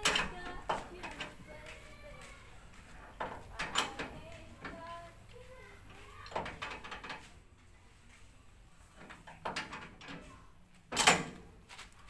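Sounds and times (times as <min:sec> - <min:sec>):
metal parts and tools clicking: 0:03.2 - 0:04.8, 0:10.9 - 0:11.4.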